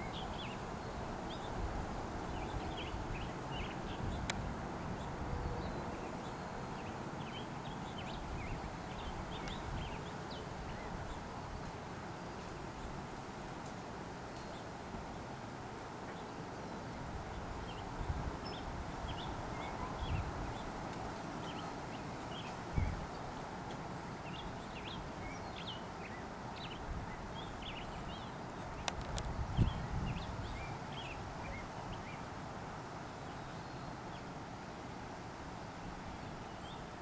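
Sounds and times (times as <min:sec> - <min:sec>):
steady outdoor hiss: 0:00.0 - 0:37.0
small birds chirping: 0:24.0 - 0:32.3.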